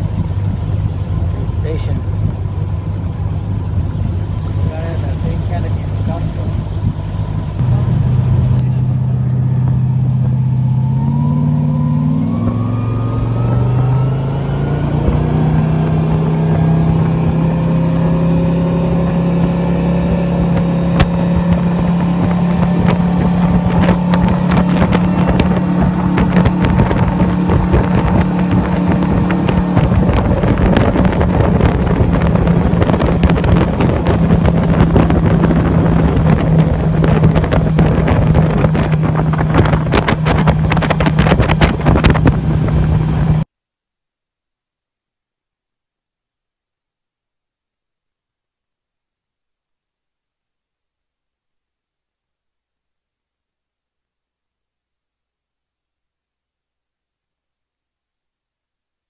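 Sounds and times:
rushing wind and water: 0.0s - 43.4s
motorboat engine throttling up: 0.0s - 43.5s.

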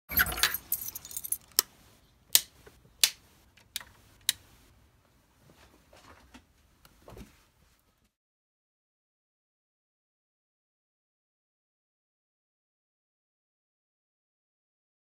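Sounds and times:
light jingling: 0.1s - 1.6s.

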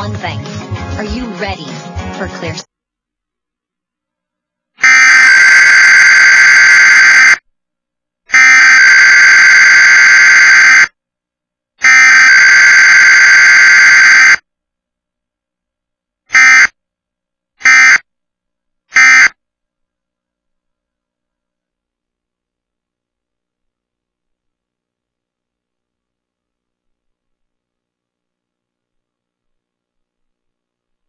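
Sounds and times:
harsh buzzing data bursts: 4.8s - 7.4s, 8.3s - 10.9s, 11.8s - 14.4s, 16.3s - 16.7s, 17.6s - 18.0s, 19.0s - 19.3s.

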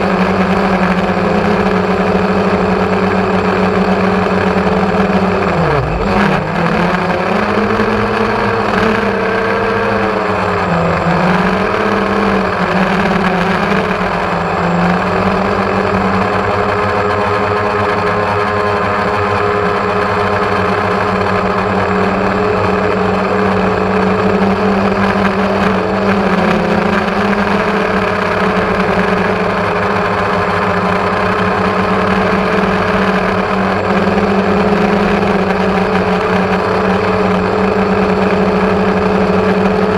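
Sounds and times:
drone propellers humming: 0.0s - 39.9s.

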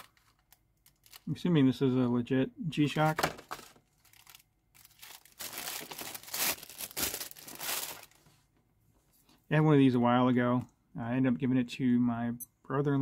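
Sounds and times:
plastic wrapping crinkling: 0.0s - 1.4s, 3.4s - 8.3s.

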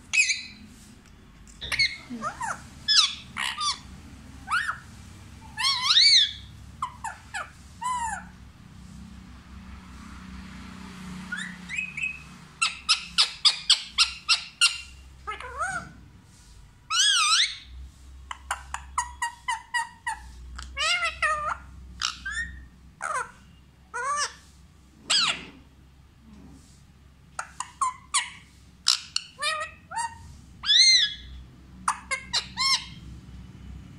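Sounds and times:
parakeet chirps and whistles: 0.1s - 0.7s, 1.6s - 8.3s, 11.3s - 16.0s, 16.9s - 24.4s, 25.1s - 25.6s, 27.3s - 33.1s.

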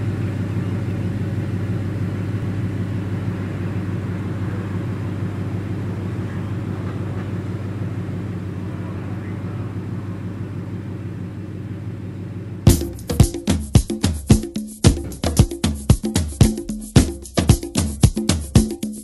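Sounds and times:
engine droning: 0.0s - 19.0s
faint voices: 4.0s - 11.0s.

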